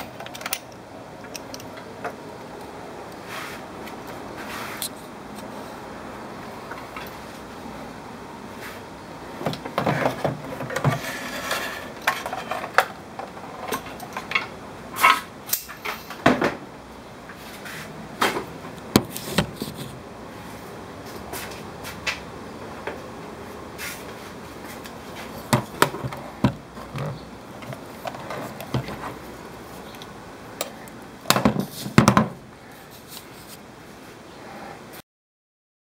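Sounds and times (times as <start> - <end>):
plastic cases being handled: 18.2 - 20.0, 24.8 - 29.9.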